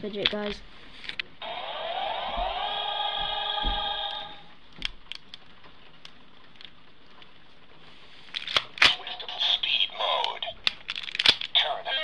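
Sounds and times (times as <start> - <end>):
plastic clicks: 0.2 - 1.3, 4.8 - 7.3, 8.3 - 9.0, 10.2 - 11.6.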